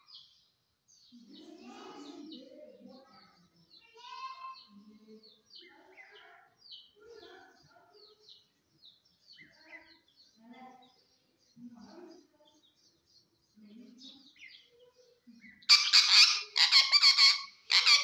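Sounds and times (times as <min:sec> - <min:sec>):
parakeet chattering: 0:15.7 - 0:18.0.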